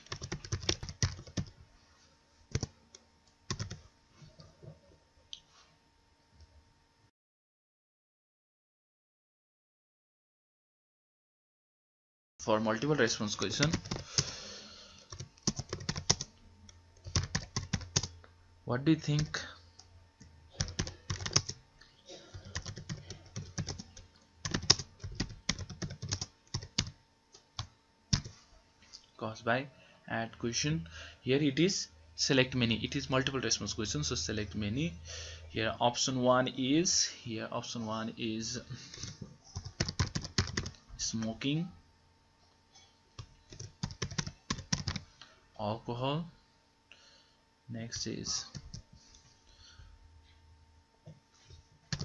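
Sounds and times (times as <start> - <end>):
typing on computer keyboard: 0.0 - 1.5, 2.5 - 2.7, 3.5 - 3.8, 13.5 - 14.3, 15.1 - 16.3, 17.0 - 18.1, 20.6 - 21.6, 22.4 - 27.0, 38.9 - 40.8, 43.2 - 45.0.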